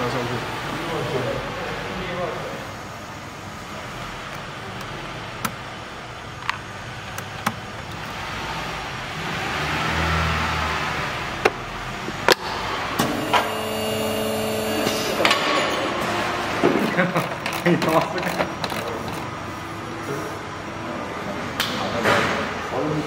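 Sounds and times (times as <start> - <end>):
machine hum with several pitches: 12.6 - 17.6.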